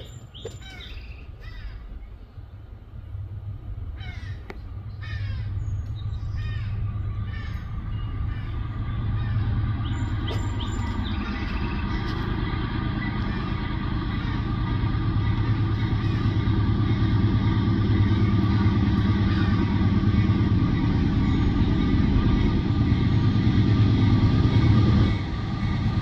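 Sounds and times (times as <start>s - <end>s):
harsh bird calls: 0.0s - 3.2s, 3.9s - 26.0s
freight train rumble: 0.0s - 26.0s.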